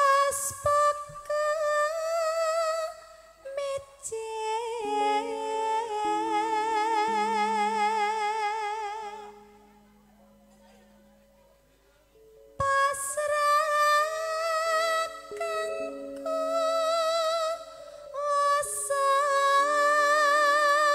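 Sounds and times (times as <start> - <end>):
woman singing into a microphone: 0.0 - 9.6, 12.6 - 20.9
accompanying instrument notes: 4.4 - 20.9.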